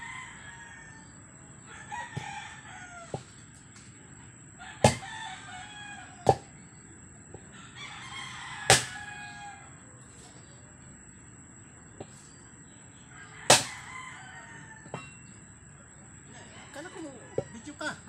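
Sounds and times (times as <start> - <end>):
rooster crowing: 0.0 - 3.4, 4.6 - 6.6, 7.5 - 10.0, 13.0 - 18.0
axe striking log: 4.8 - 5.1, 6.2 - 6.5, 8.7 - 9.0, 13.5 - 13.9.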